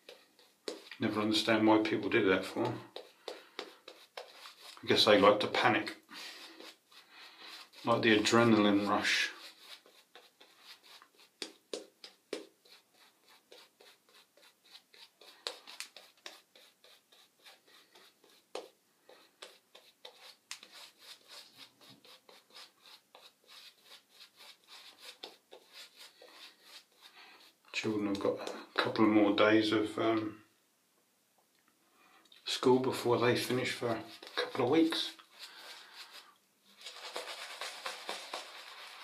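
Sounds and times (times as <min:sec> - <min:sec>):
shaving brush lathering soap: 0:00.0 - 0:27.4, 0:36.8 - 0:39.0.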